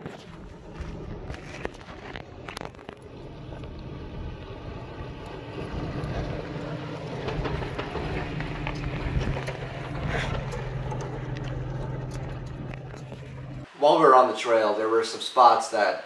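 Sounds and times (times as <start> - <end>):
tyres crunching on rock: 0.0 - 3.8
engine running at low revs: 0.0 - 13.7.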